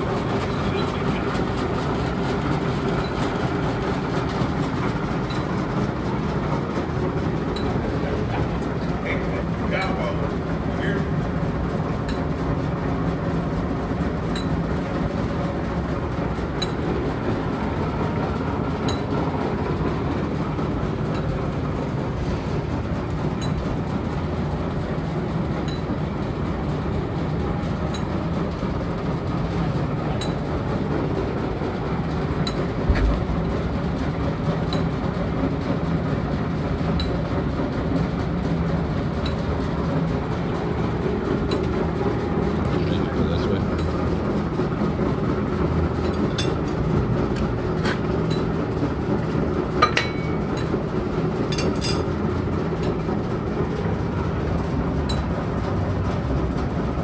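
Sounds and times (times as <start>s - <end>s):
lathe gearing rumble: 0.0s - 57.0s
low thump: 32.9s - 33.4s.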